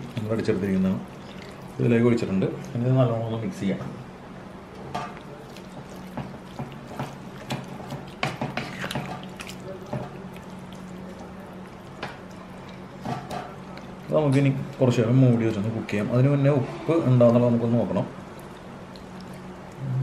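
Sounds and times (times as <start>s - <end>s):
liquid sloshing in a frying pan: 0.0s - 3.0s, 4.5s - 20.0s
spatula scraping and tapping pan: 5.8s - 9.3s.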